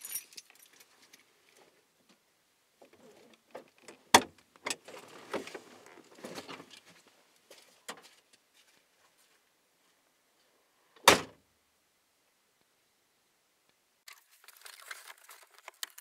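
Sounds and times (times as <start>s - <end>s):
rustling and small knocks: 2.8s - 10.0s.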